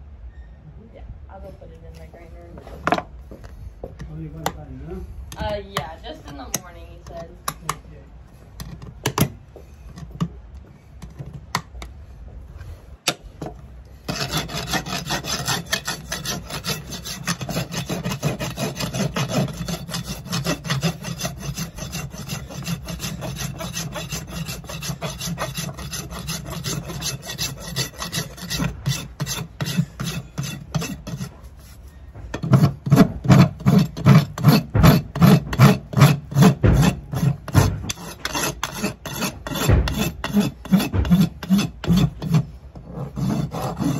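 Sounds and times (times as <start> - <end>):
rasp filing a hoof: 12.6 - 43.9.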